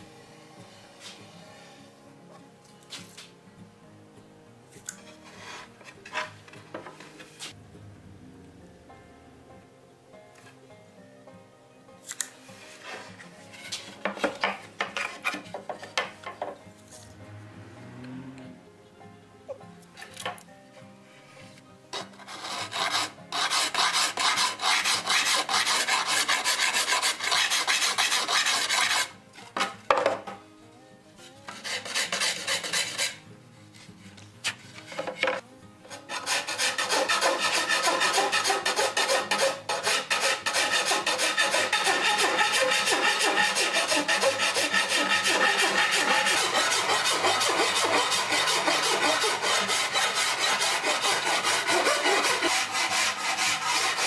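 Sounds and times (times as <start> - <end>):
hand rasp scraping wood: 12.8 - 16.0, 22.0 - 29.2, 31.5 - 54.0.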